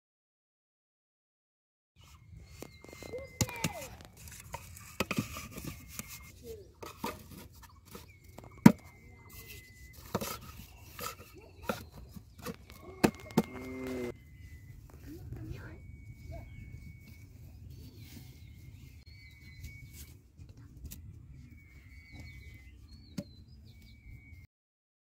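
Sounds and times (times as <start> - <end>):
thin high tone: 12.7 - 17.9.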